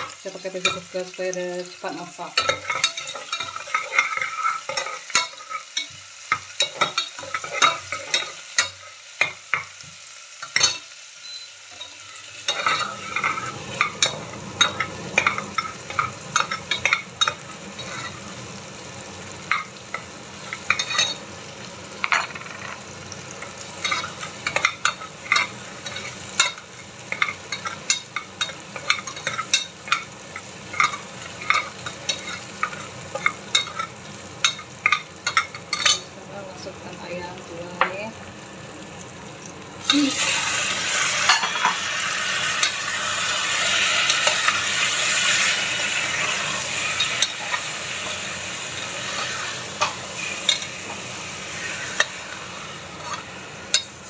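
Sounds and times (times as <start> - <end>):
food sizzling in hot oil: 0.0 - 54.0.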